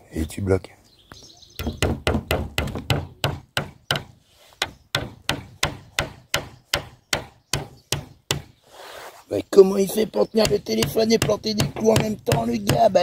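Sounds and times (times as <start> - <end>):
hammer striking nail into wood: 1.6 - 8.5, 10.4 - 13.0.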